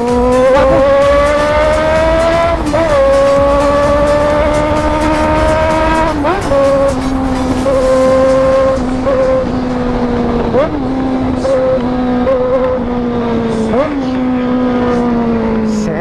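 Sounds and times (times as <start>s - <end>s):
motorcycle accelerating and shifting: 0.0s - 16.0s.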